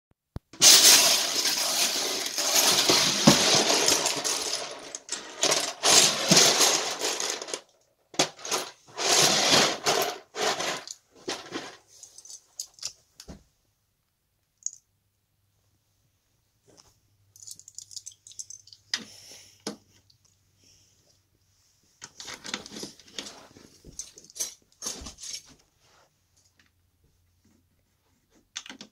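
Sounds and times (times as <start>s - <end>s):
plastic pieces rattling in bin: 0.6s - 12.9s.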